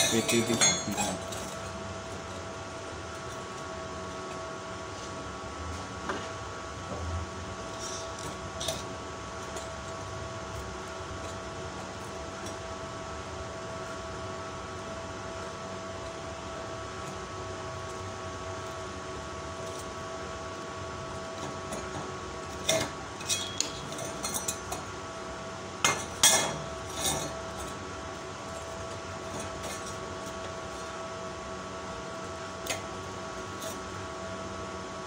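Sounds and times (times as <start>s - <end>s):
sharp metal clanks: 0.0s - 1.2s, 23.2s - 24.4s
steady mechanical hum: 0.0s - 35.0s
steel strips clinking: 23.2s - 24.6s.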